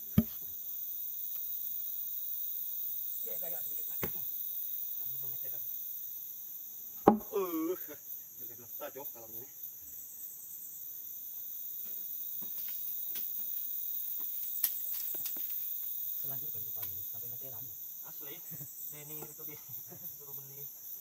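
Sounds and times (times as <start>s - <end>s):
insects buzzing: 0.0s - 21.0s
wooden beam knock: 7.0s - 7.3s.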